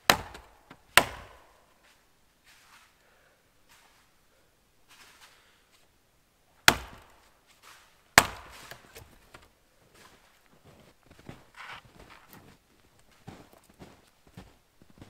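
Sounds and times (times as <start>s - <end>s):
axe striking wood: 0.0s - 1.6s, 6.6s - 7.2s, 8.1s - 9.4s
quiet scuffing: 1.7s - 3.0s, 3.6s - 4.2s, 4.8s - 5.9s, 7.2s - 15.0s.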